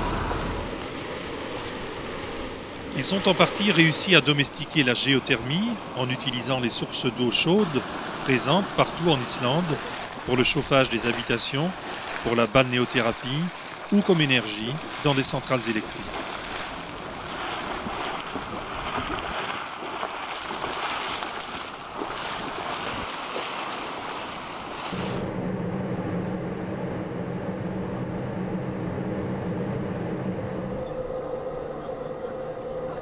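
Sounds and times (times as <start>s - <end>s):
low machine hum: 0.0s - 0.9s, 3.5s - 33.0s
water gushing and splashing: 3.6s - 25.3s.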